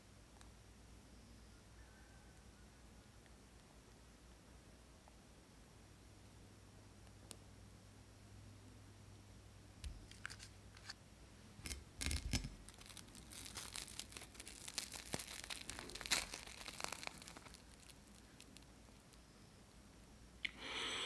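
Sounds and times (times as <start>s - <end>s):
fried crust crackling and tearing: 11.6s - 19.2s.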